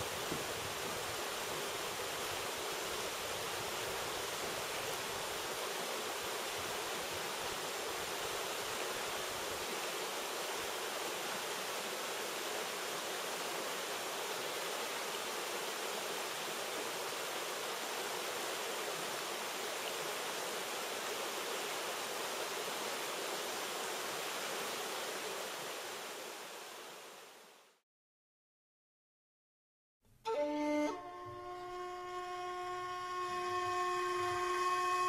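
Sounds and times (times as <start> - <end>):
fast mountain stream rushing: 0.0 - 27.8.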